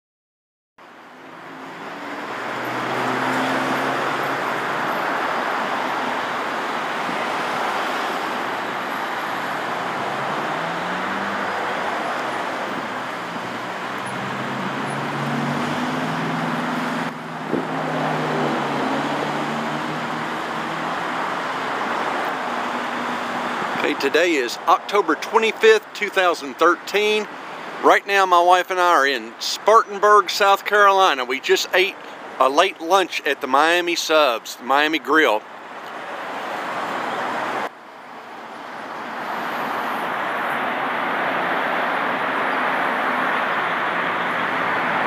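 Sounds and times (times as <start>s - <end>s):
passing cars: 0.8s - 45.0s
car engine speeding up: 1.4s - 5.9s, 7.3s - 23.9s.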